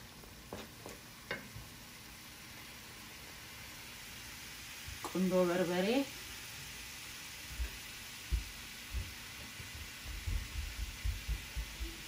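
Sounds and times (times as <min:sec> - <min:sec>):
sauce sizzling in a pan: 0:00.0 - 0:12.0
soft low thumps: 0:07.6 - 0:12.0.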